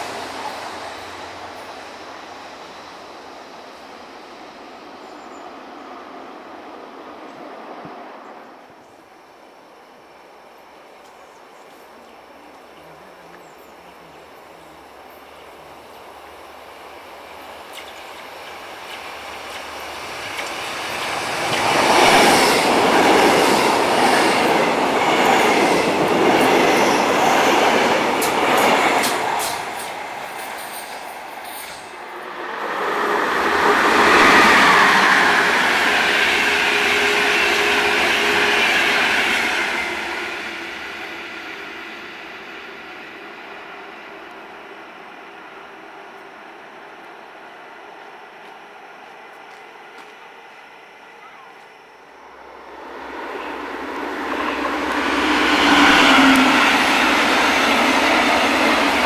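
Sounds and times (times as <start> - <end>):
electric train passing: 0.0 - 11.6, 12.2 - 59.0
train whine: 0.0 - 59.0
train wheels clicking over rail joints: 28.1 - 32.0.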